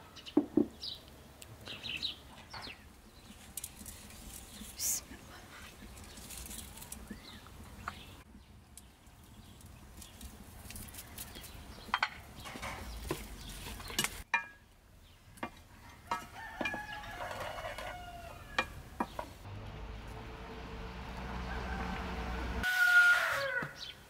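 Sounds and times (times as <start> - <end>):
rooster crowing: 15.9 - 18.8, 21.1 - 24.0.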